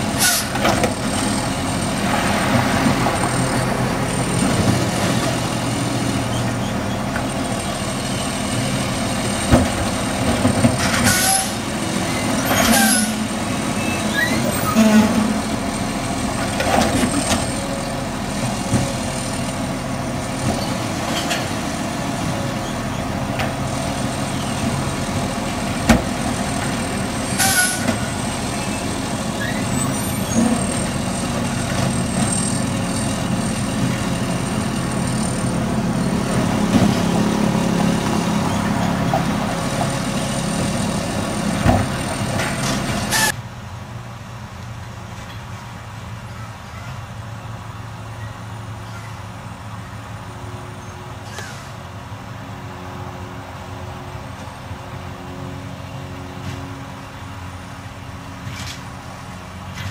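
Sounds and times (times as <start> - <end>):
garbage truck diesel idling: 11.5 - 43.8.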